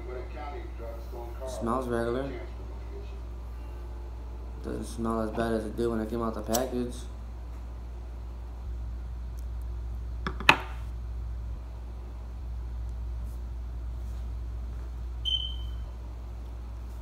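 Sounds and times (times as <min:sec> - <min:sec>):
steady low hum: 0:00.0 - 0:17.0
short high beep: 0:15.3 - 0:15.8.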